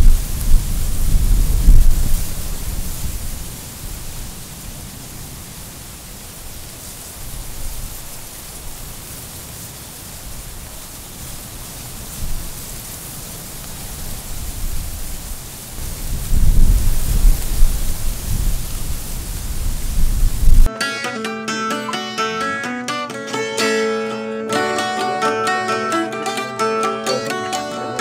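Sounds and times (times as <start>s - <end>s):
rain falling on foliage: 0.0s - 20.7s.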